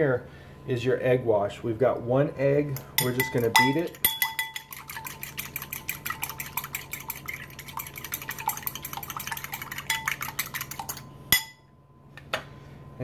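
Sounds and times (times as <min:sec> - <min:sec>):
fork beating egg in glass bowl: 0:03.0 - 0:11.0.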